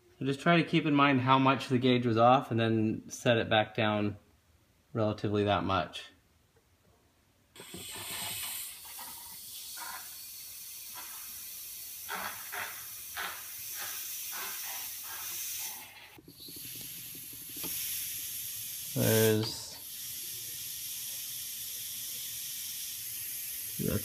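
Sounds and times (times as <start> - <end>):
air hissing through pump: 7.6 - 24.0.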